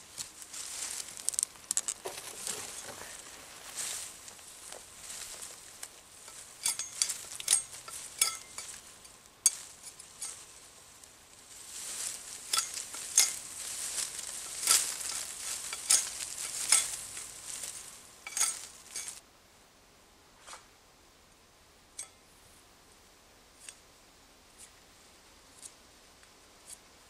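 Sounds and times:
leaves rustling: 0.0 - 19.2
twigs snapping and crackling: 0.2 - 2.8, 12.3 - 19.2.

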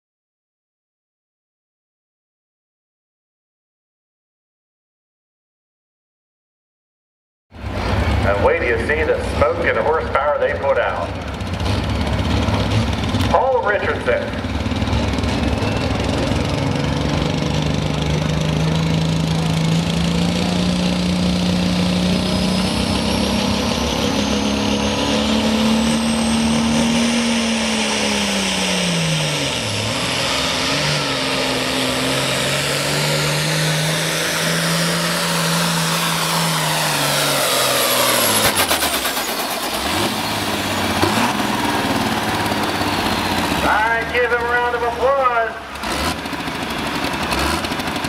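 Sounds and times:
tractor diesel engine running hard: 7.5 - 48.0.

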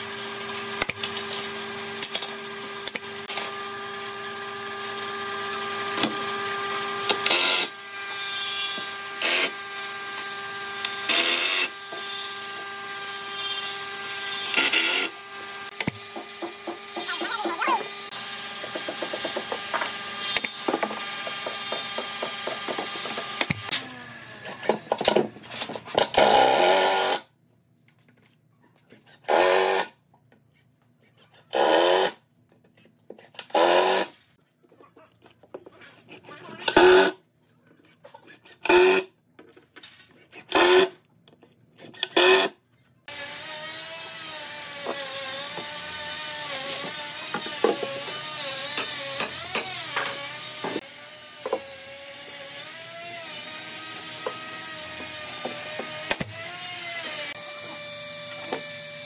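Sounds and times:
power tool bursts: 33.5 - 34.1.

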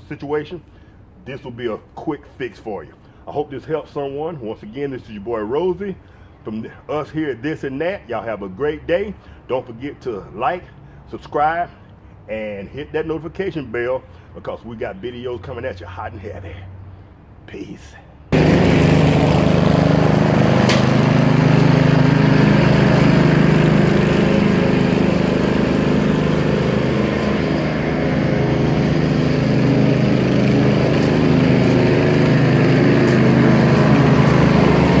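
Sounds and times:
riding mower engine mowing grass: 18.3 - 35.0.

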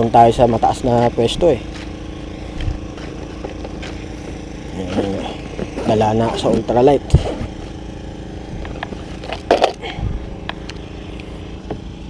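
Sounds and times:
motor droning: 0.0 - 12.0.

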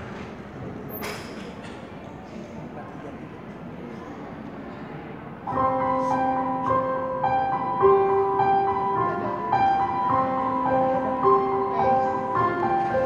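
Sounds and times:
keyboard playing slow chords: 5.5 - 13.0.

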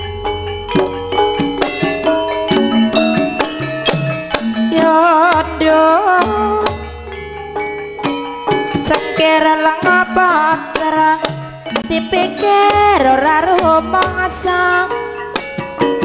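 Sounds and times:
high wavering vocal melody: 0.0 - 7.8, 8.9 - 15.7
ringing metallophones and gongs: 0.0 - 16.0
hand drum strokes: 0.7 - 7.2.

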